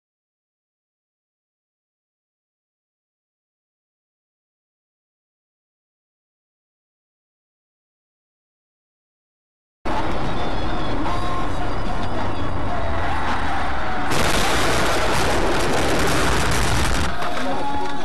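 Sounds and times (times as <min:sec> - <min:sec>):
engine and tyre rumble: 0:09.9 - 0:18.0.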